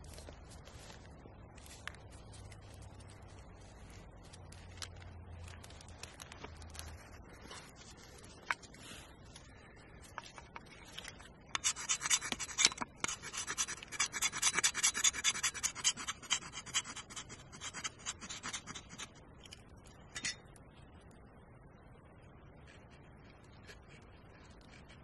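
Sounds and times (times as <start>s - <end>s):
knife scraping wood: 10.0s - 19.2s.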